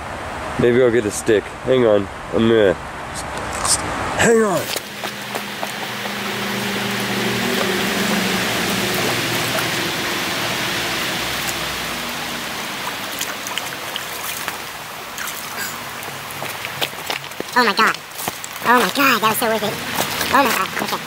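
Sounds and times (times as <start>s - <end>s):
creek rushing: 2.9s - 21.0s
water splashing from stick: 4.6s - 21.0s.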